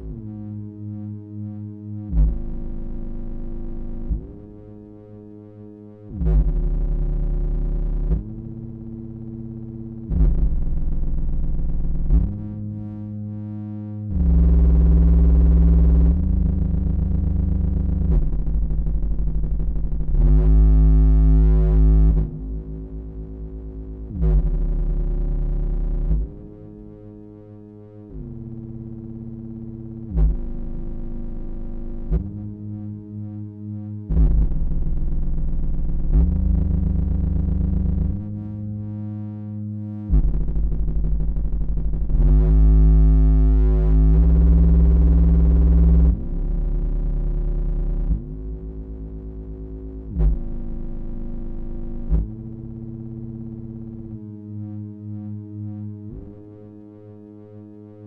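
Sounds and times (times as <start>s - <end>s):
distorted synthesizer buzzing tones: 6.2s - 27.2s, 34.1s - 56.2s.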